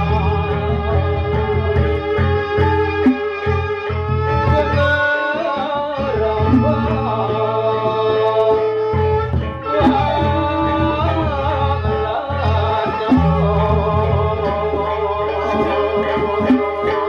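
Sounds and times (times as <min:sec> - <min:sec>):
bamboo flute: 0:00.0 - 0:07.5, 0:08.4 - 0:17.0
man singing held notes: 0:04.6 - 0:08.5
large drums: 0:13.1 - 0:14.9.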